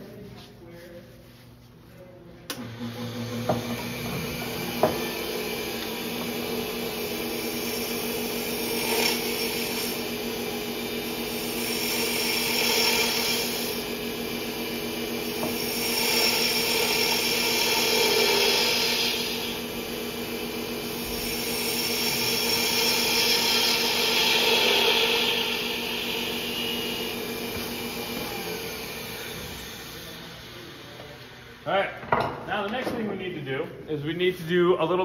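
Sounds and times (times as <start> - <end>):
wood lathe humming: 2.5 - 31.8
gouge cutting wood hiss: 3.5 - 30.3.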